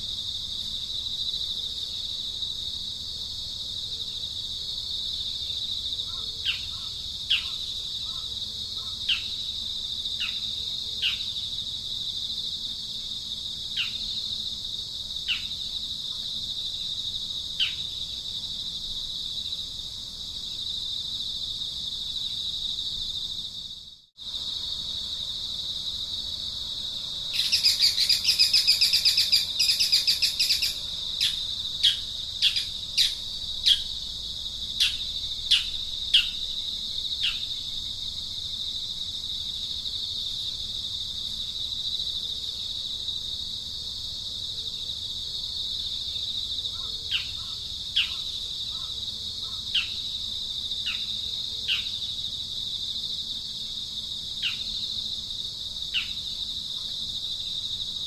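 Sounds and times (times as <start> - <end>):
high insect drone: 0.0 - 58.0
bird rapid chattering call: 27.4 - 33.8.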